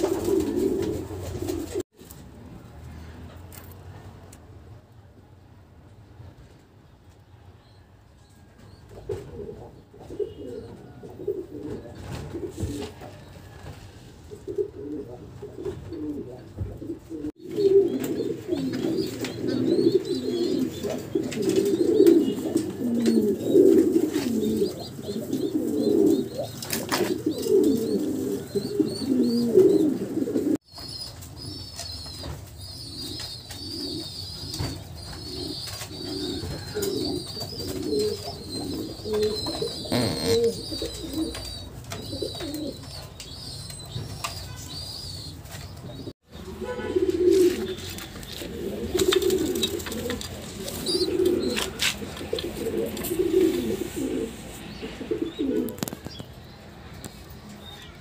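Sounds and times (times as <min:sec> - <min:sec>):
pigeons cooing: 0:00.0 - 0:01.8, 0:08.9 - 0:13.3, 0:14.2 - 0:56.2
thin high peeping: 0:30.8 - 0:41.5.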